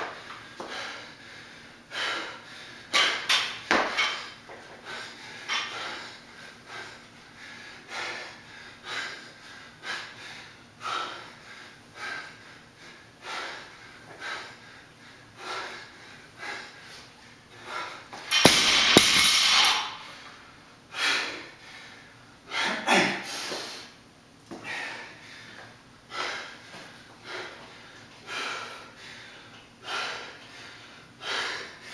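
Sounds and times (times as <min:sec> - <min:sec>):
heavy rhythmic breathing: 0:00.2 - 0:31.9
barbell crashing on floor: 0:18.3 - 0:20.3.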